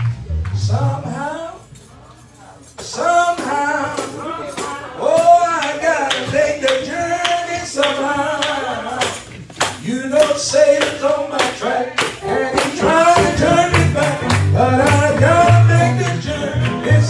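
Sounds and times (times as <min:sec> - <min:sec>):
low bass notes: 0:00.0 - 0:01.5, 0:12.9 - 0:17.0
man singing gospel song: 0:00.4 - 0:01.7, 0:02.8 - 0:17.0
rhythmic hand clapping: 0:02.7 - 0:17.0.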